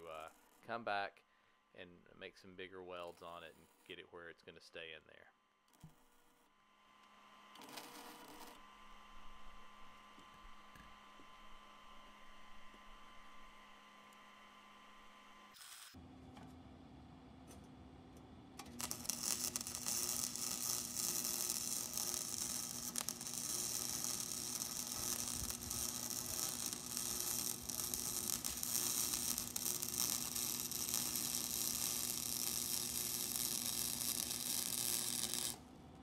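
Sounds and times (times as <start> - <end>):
steady low hum: 16.0 - 36.0
welder arc crackling: 18.6 - 35.7.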